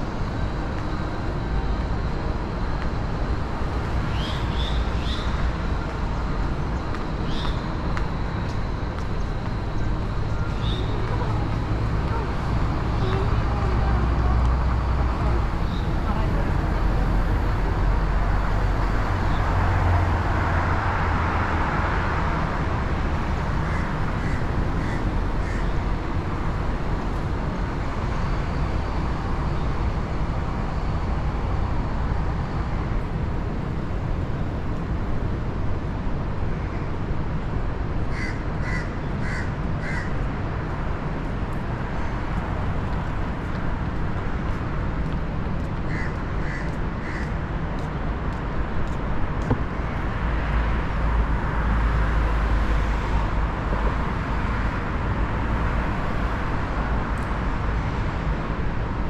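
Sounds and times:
street traffic: 0.0 - 59.0
crow cawing: 23.6 - 25.7, 38.1 - 40.2, 45.9 - 47.4.

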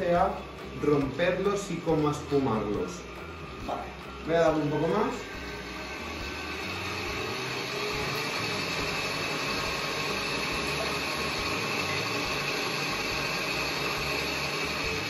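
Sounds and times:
stand mixer whisking: 4.6 - 15.0.

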